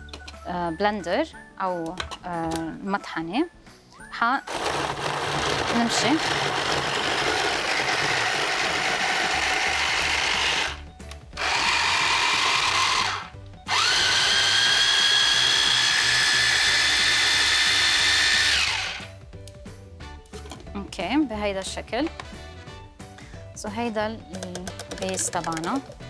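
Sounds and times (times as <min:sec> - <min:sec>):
blender motor grinding: 0:04.5 - 0:10.8, 0:11.4 - 0:19.1.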